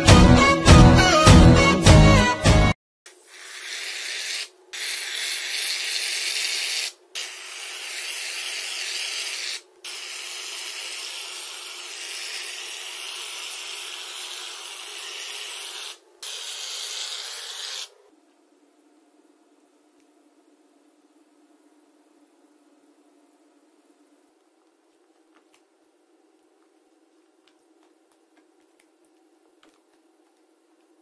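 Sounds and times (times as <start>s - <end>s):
aerosol foam spraying hiss: 3.2s - 17.9s.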